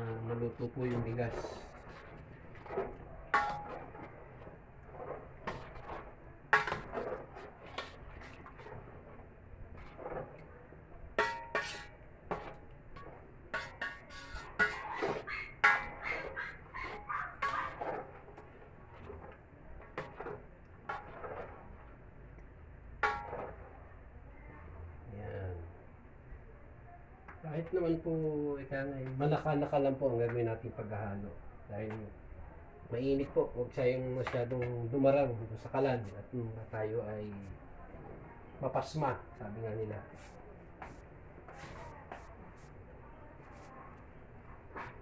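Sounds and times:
spoon scraping a pot: 0:00.8 - 0:10.5, 0:11.1 - 0:22.0, 0:40.1 - 0:42.8.

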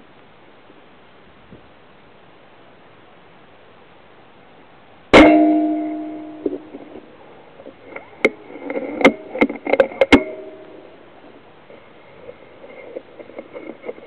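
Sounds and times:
short metallic ring: 0:05.2 - 0:07.1, 0:07.8 - 0:11.2
sharp clicks and knocks: 0:05.2 - 0:10.8.

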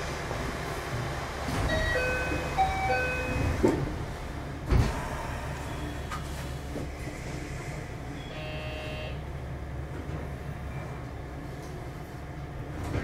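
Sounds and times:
train low hum: 0:00.0 - 0:13.0
electronic door chime: 0:01.7 - 0:03.6.

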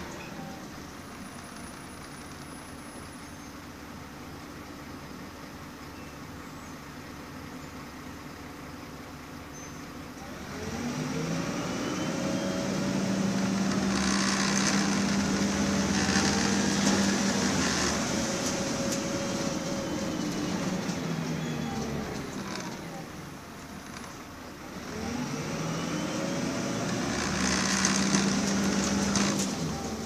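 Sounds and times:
bus diesel engine revving: 0:00.0 - 0:03.4, 0:10.0 - 0:30.0.

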